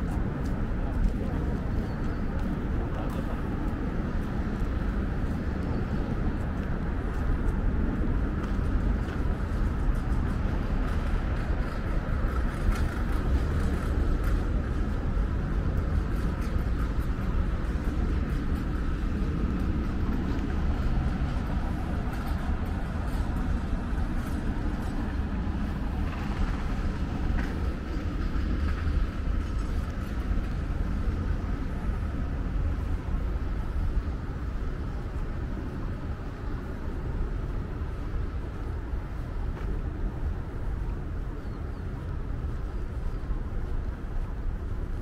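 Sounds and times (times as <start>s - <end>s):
street traffic rumble: 0.0s - 45.0s.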